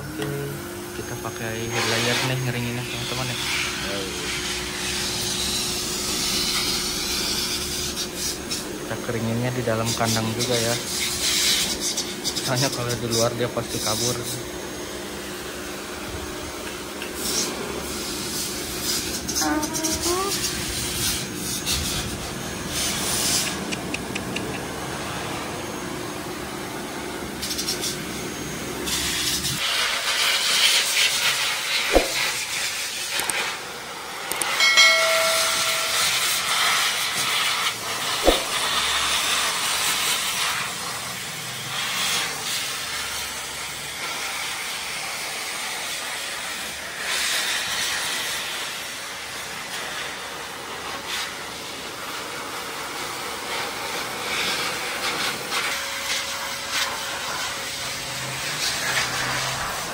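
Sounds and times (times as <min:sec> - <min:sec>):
hair dryer blowing: 0:00.0 - 0:59.9
brief high tone: 0:19.4 - 0:20.4, 0:34.6 - 0:36.8
sharp knocks: 0:31.9 - 0:32.3, 0:38.2 - 0:38.6.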